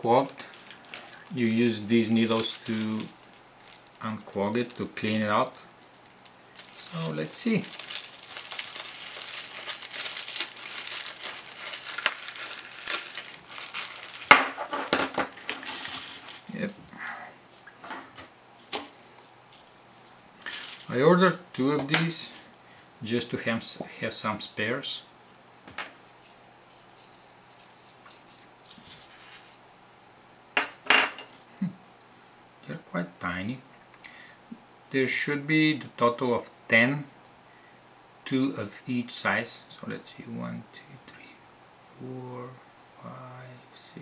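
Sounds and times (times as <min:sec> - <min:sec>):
plastic mailer bag crinkling: 0:00.3 - 0:17.8
steel needles rattling and clicking: 0:00.6 - 0:19.0.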